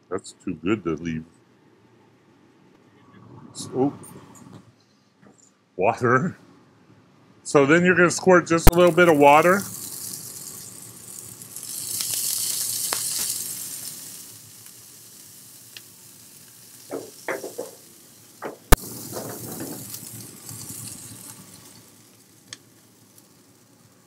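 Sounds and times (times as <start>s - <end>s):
water sizzling on hot griddle: 8.6s - 24.0s
knocks: 16.9s - 17.8s, 18.4s - 19.8s.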